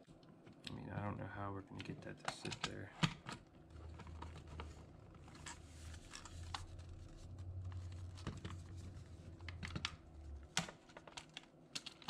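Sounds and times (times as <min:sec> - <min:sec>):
low steady hum: 0:00.0 - 0:12.0
plastic case clicks and rustling: 0:09.4 - 0:12.0.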